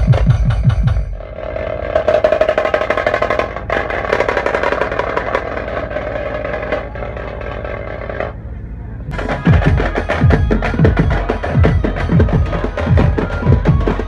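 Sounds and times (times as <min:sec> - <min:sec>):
fast dense drumming: 0:00.0 - 0:01.1, 0:09.1 - 0:14.0.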